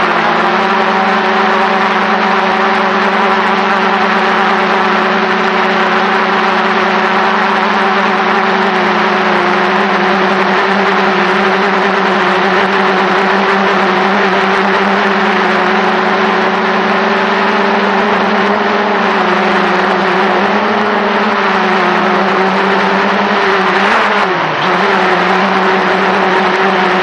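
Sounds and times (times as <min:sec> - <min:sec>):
drone propellers buzzing: 0:00.0 - 0:27.0.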